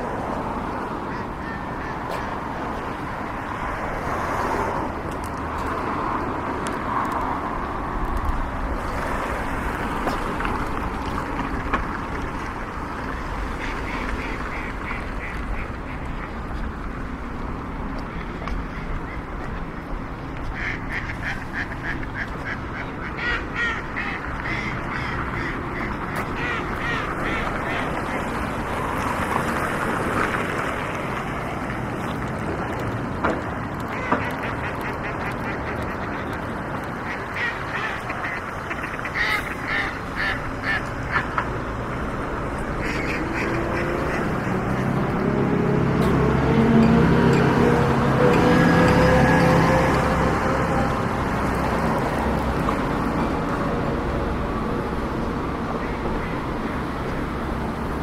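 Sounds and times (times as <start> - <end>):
outdoor background noise: 0.0 - 58.0
ducks quacking: 1.0 - 2.6, 13.5 - 16.4, 18.2 - 28.9, 33.8 - 41.4, 42.6 - 45.1.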